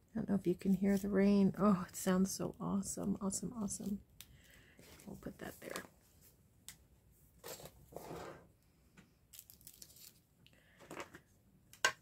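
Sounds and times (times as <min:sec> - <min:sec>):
paper rustling and scraping: 0:07.4 - 0:08.4.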